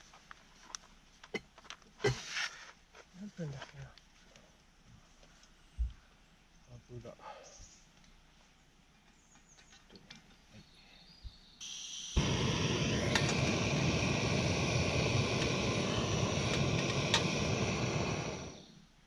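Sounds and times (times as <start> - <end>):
camping stove burner roaring: 11.6 - 18.8
gas hissing: 11.6 - 18.8.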